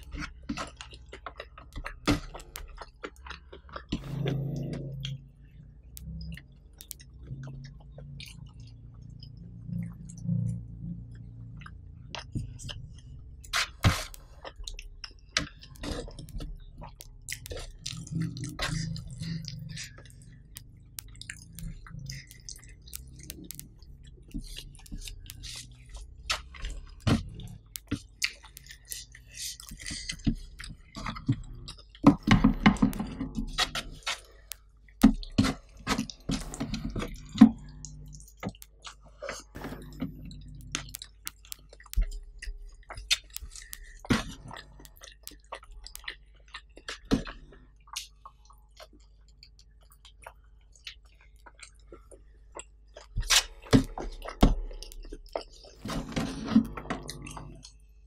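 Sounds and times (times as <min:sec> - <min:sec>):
close-miked chewing: 0:00.0 - 0:58.0
wet lip smacking clicks: 0:05.8 - 0:47.0.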